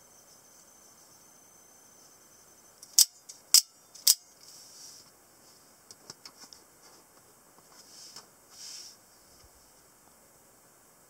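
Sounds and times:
soft rustle: 4.4 - 10.0.

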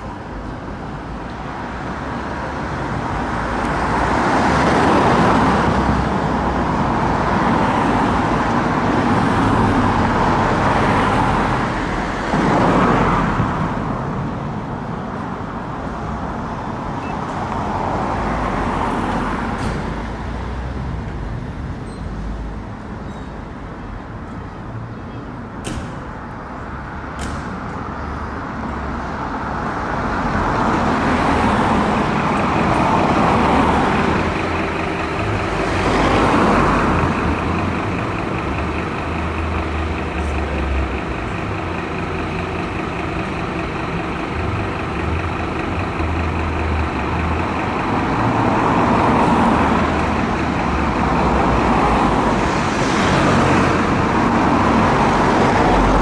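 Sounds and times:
road traffic passing: 0.0 - 56.0
diesel engine idling: 26.1 - 56.0.

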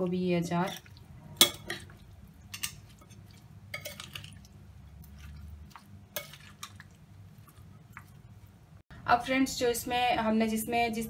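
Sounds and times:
spoon clinking and scraping glass: 2.5 - 4.4.

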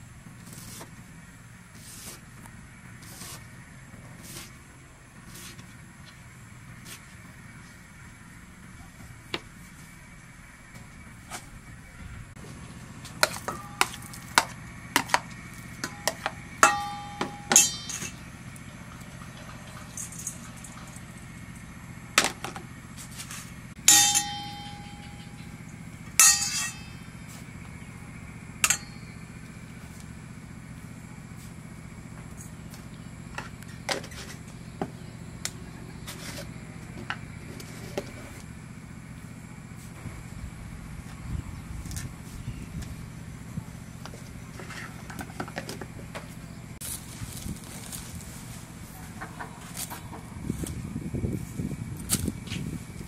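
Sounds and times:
metal spoon clinking in steel bowl: 15.8 - 18.2, 23.9 - 25.4, 26.2 - 27.0.

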